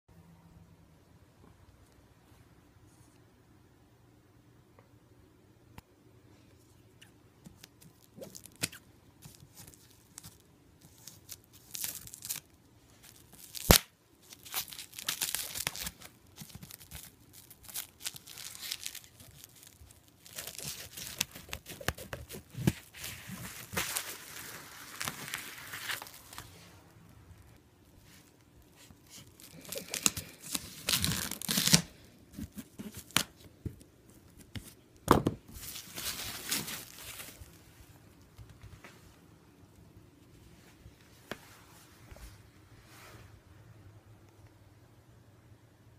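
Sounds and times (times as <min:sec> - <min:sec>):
crinkling: 0:06.9 - 0:39.2.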